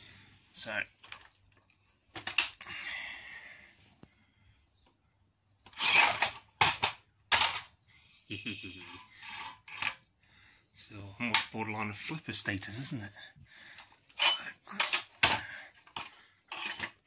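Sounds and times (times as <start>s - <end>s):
metal scraping on concrete: 5.6s - 7.7s, 8.8s - 10.0s, 14.1s - 17.0s.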